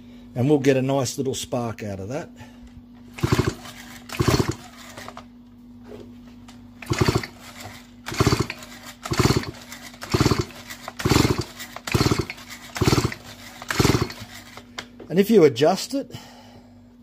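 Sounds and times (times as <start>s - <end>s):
chainsaw recoil starter whirring: 3.1s - 5.3s, 6.8s - 14.7s.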